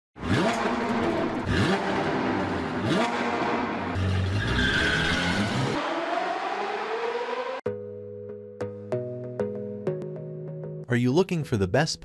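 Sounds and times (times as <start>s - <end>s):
car engine revving: 0.2s - 7.6s
tyre squeal: 4.2s - 5.8s.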